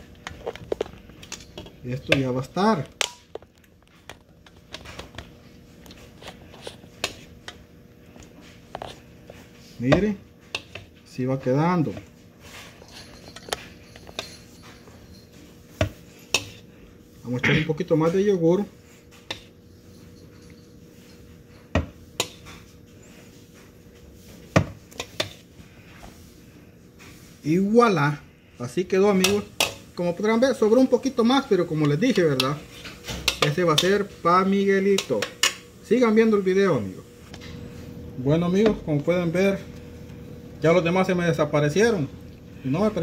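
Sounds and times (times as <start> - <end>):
faint hum: 0.0 - 43.0
metal spoon clinking: 12.9 - 14.6
metal spoon scraping and tapping bowl: 29.1 - 29.8, 31.2 - 34.0.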